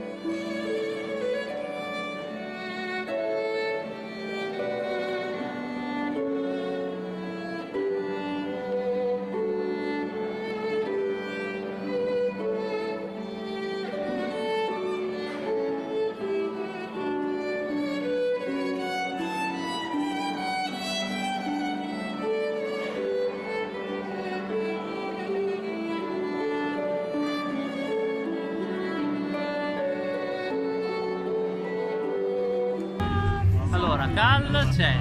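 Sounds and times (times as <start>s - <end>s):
slow violin melody: 0.0s - 35.0s
low sustained drone note: 33.0s - 35.0s.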